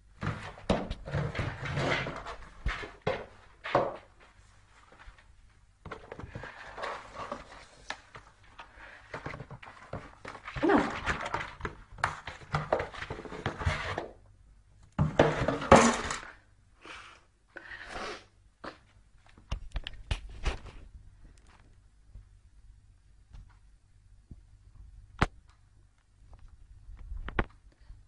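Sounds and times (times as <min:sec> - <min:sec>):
cardboard box scraping on floor: 0:00.2 - 0:04.2, 0:06.1 - 0:07.9, 0:12.2 - 0:14.2.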